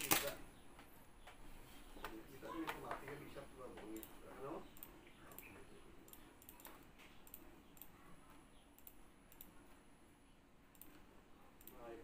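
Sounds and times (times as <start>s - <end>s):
computer mouse clicks: 3.8s - 9.8s, 10.7s - 11.9s.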